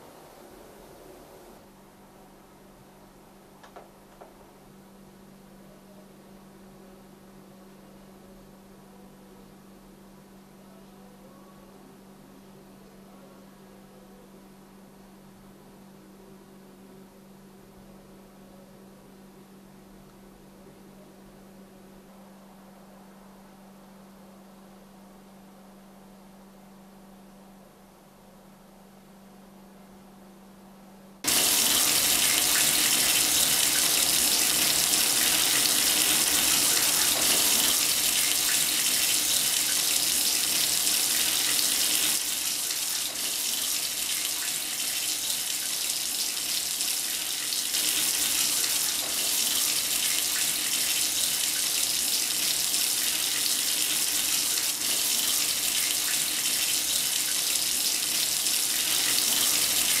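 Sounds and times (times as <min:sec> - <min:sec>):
sink tap running: 0:31.3 - 1:00.0.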